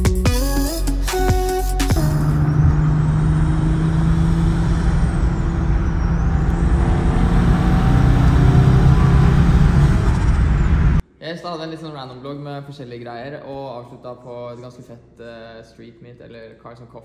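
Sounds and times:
music: 0.0s - 2.8s
car engine drone: 1.8s - 11.0s
road noise inside car: 2.0s - 11.0s.

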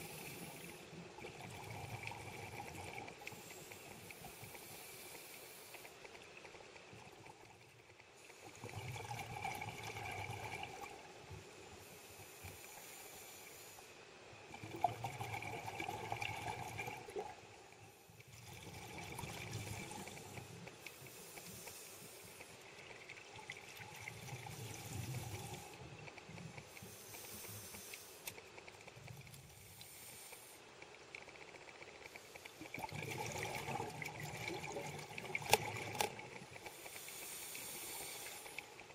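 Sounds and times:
regulator inhalation hiss: 0.0s - 1.0s, 3.3s - 6.0s, 11.5s - 14.1s, 19.6s - 22.7s, 26.7s - 28.4s, 29.5s - 30.7s, 36.6s - 38.9s
bubbling exhalations: 32.6s - 36.4s.

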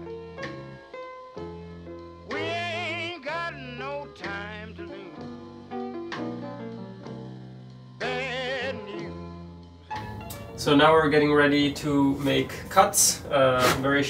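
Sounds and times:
song with singing voice: 2.2s - 5.6s, 7.9s - 9.4s.

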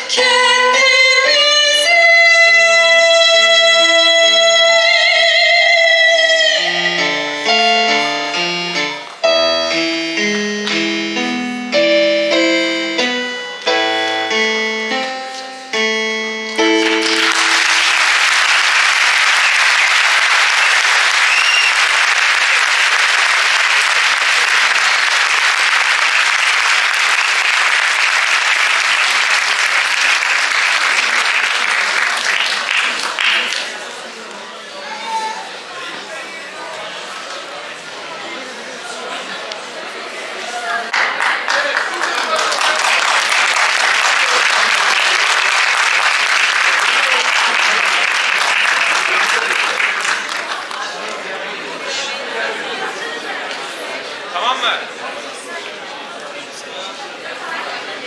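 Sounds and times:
person singing: 0.0s - 18.0s
slow keyboard notes and chords: 6.1s - 18.2s
audience applause: 16.6s - 34.1s, 40.9s - 51.7s.

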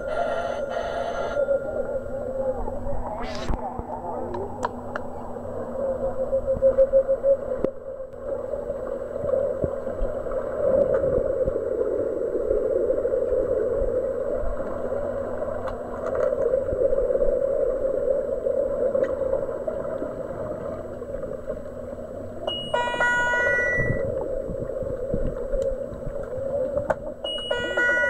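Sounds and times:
muffled underwater rushing: 0.0s - 28.0s
faint clicks: 25.2s - 27.1s.

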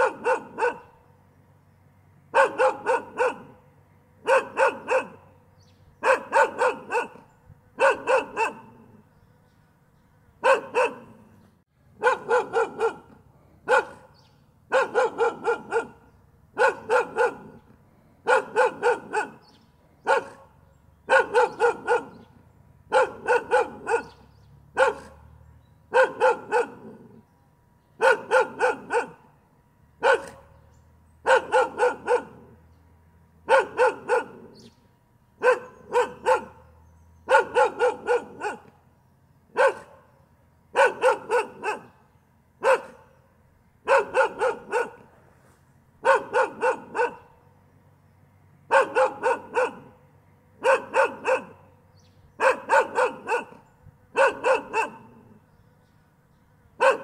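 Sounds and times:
dog barking: 0.0s - 1.0s, 2.3s - 3.6s, 4.2s - 5.3s, 6.0s - 9.0s, 10.4s - 11.3s, 12.0s - 17.6s, 18.2s - 25.3s, 25.9s - 27.2s, 28.0s - 29.3s, 30.0s - 30.6s, 31.2s - 32.6s, 33.4s - 34.7s, 35.4s - 38.7s, 39.5s - 40.1s, 40.7s - 42.0s, 42.6s - 43.1s, 43.8s - 45.1s, 46.0s - 47.4s, 48.7s - 50.0s, 50.6s - 51.8s, 52.4s - 55.4s, 56.8s - 57.0s.

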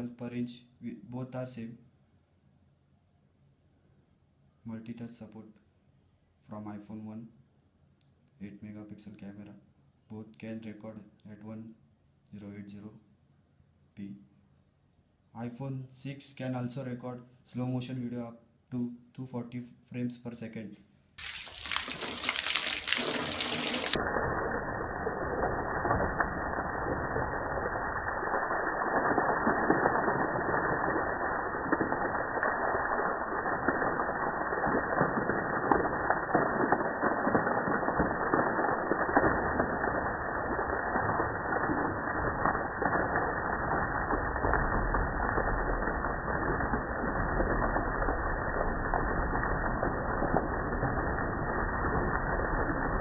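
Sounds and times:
water jet hissing on motorcycle: 21.2s - 24.0s.

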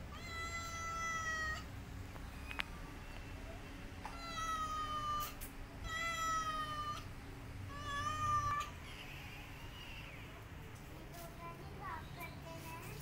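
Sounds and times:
cat meowing: 0.1s - 1.7s, 4.0s - 7.1s, 7.7s - 10.4s.

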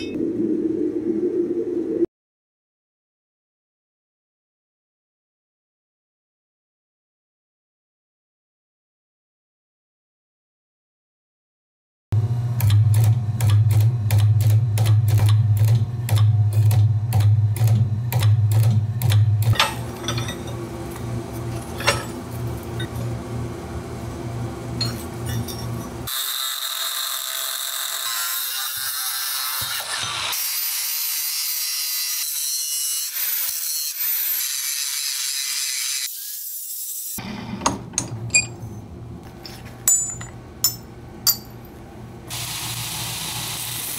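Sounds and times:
forging machine hum: 12.2s - 26.2s, 37.2s - 42.2s
workshop noise: 12.2s - 31.1s, 36.4s - 42.9s
forging machine strikes: 12.6s - 23.1s.

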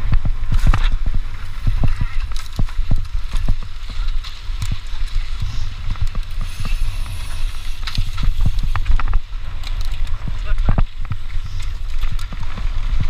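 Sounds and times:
bike clicks and rattles: 0.0s - 13.0s
wind rumble on microphone: 0.0s - 13.0s
tyres hissing on loose dirt: 4.8s - 9.4s.

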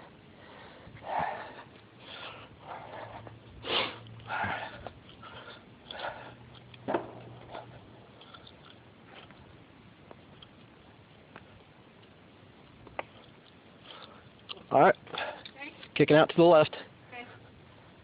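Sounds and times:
faint low hum: 0.0s - 16.0s
person breathing and sniffing: 0.4s - 6.5s.

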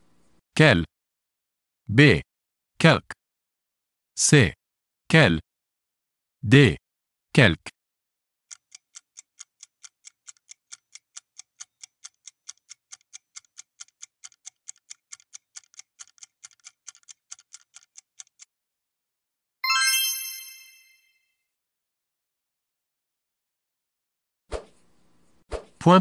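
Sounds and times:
clock ticking: 8.5s - 18.5s
bright chime: 19.6s - 21.2s.

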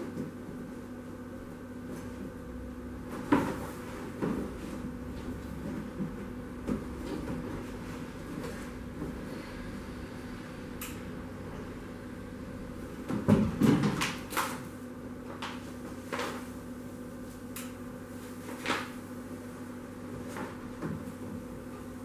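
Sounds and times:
low steady hum: 0.0s - 22.0s
sheet material knocking and crackling: 3.1s - 9.2s, 13.0s - 14.6s.

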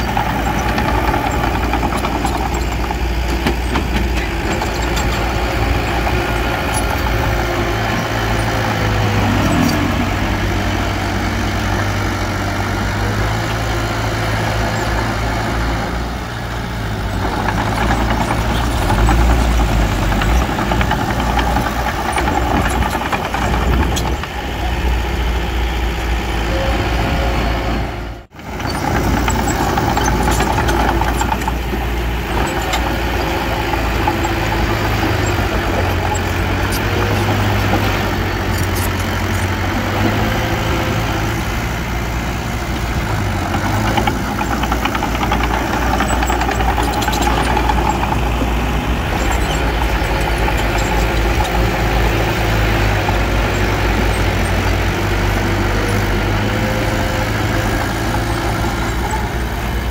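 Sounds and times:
heavy machinery diesel engine: 0.0s - 59.9s.

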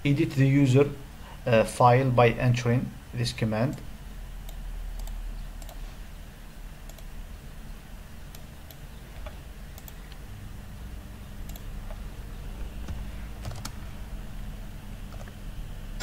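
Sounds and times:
low hum: 0.0s - 16.0s
keyboard and mouse clicks: 4.4s - 5.8s, 6.9s - 7.1s, 8.3s - 10.2s, 11.4s - 12.0s, 12.8s - 13.8s, 15.1s - 15.4s.

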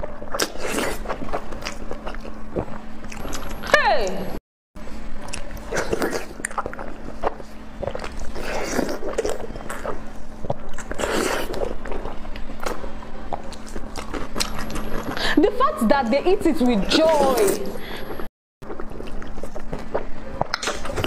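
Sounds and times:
person chewing food: 0.0s - 3.7s, 5.1s - 15.2s, 18.6s - 21.0s.

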